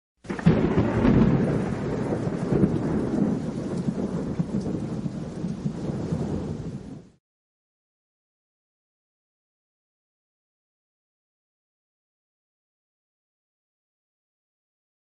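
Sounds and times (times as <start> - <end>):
rain: 0.2 - 7.2
rolling thunder: 0.3 - 7.2.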